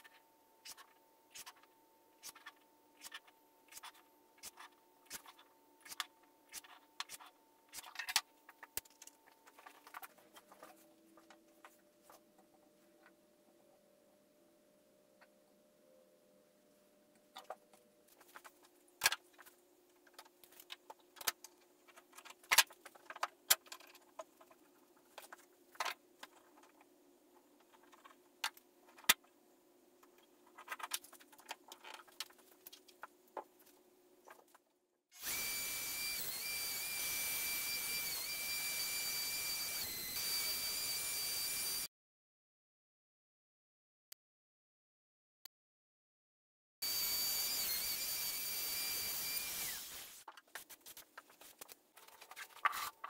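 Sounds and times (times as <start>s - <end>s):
router whining: 35.2s - 41.9s, 46.8s - 50.2s.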